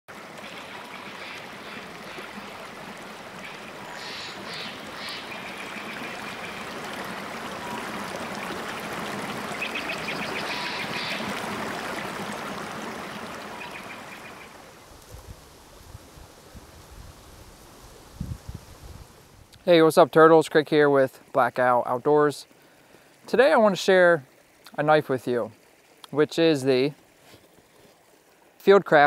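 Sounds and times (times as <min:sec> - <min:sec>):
water rushing over rocks: 0:00.1 - 0:16.2.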